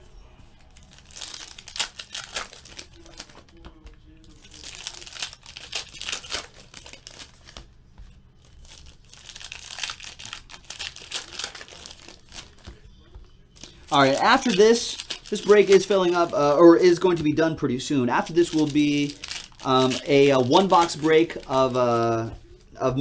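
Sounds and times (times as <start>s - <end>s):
plastic wrappers tearing: 0.6s - 7.7s, 8.4s - 12.8s, 13.6s - 23.0s.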